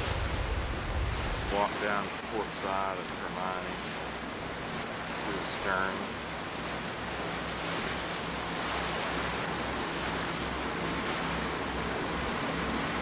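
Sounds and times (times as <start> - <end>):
wind on microphone: 0.0 - 1.6
low boat engine drone: 0.0 - 13.0
water rushing along a hull: 0.0 - 13.0.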